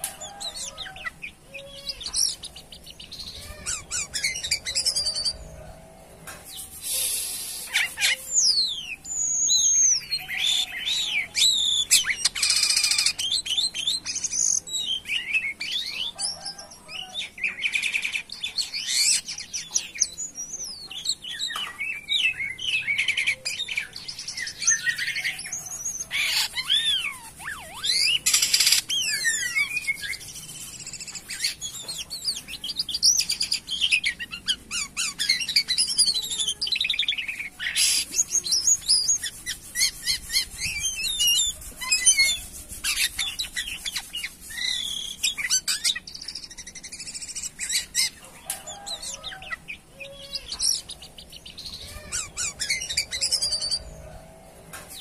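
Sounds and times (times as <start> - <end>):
starling singing: 0.0 - 54.2.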